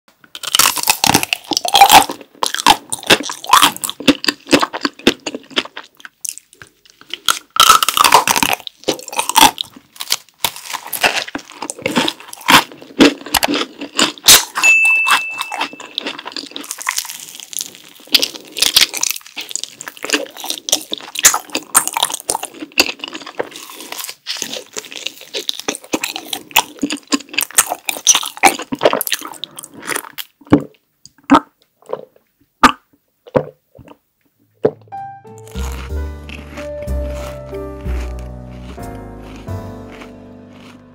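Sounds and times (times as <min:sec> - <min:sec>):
crisp bites and crunches: 0:00.3 - 0:30.6, 0:35.3 - 0:40.9
chewing: 0:00.3 - 0:34.0, 0:35.4 - 0:40.9
short steady high tone: 0:14.6 - 0:16.0.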